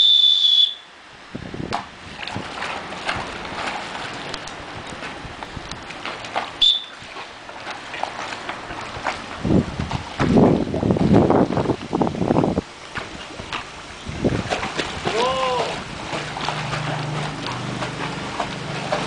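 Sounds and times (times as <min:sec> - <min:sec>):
brief high whistle: 0:00.0 - 0:00.9, 0:06.6 - 0:07.0
water splashing and churning: 0:00.0 - 0:19.0.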